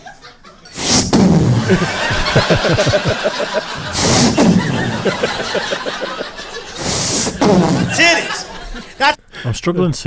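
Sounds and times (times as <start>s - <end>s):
audience laughing: 0.0s - 9.1s
short hissy bursts: 0.8s - 1.2s, 3.8s - 4.6s, 6.7s - 8.0s
man chuckling: 1.6s - 9.0s.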